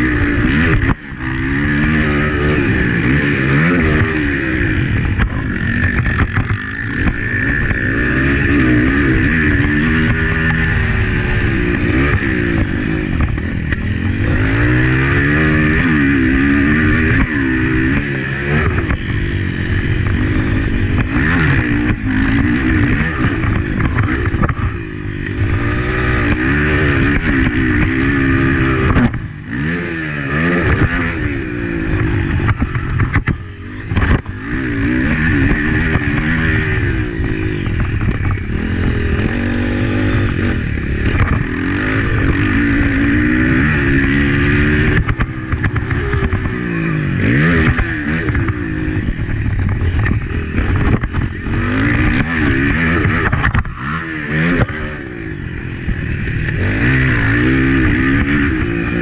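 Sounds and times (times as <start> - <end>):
motorcycle engine revving: 0.0 - 59.0
wind and track noise: 0.0 - 59.0.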